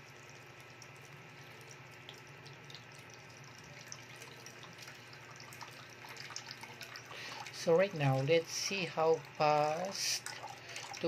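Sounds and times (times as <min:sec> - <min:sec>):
drip ticks: 0:00.0 - 0:07.5
water pouring into pot: 0:00.0 - 0:11.0.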